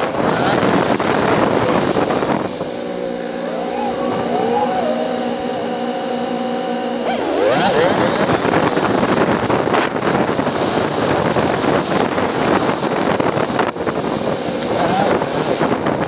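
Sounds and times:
motorcycle engine: 0.0s - 10.2s
wind noise on microphone: 0.0s - 16.0s.

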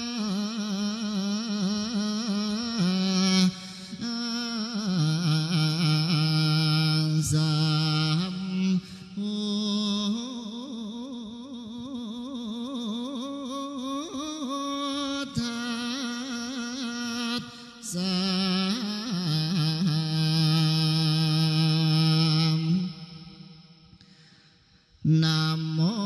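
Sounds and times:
voice chanting long wavering notes: 0.0s - 24.0s, 25.0s - 26.0s.

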